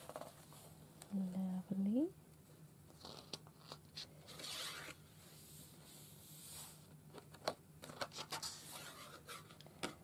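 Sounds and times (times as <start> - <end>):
paper rustling and sliding: 3.0 - 9.6.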